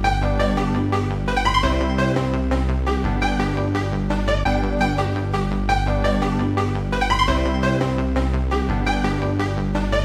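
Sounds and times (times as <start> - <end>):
electronic music with steady beat: 0.0 - 10.0.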